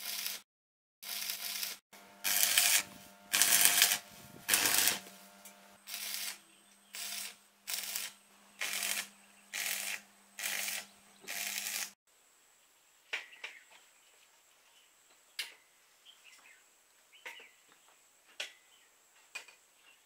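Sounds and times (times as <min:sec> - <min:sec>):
arc welder crackling: 0:00.0 - 0:00.4, 0:01.0 - 0:12.0.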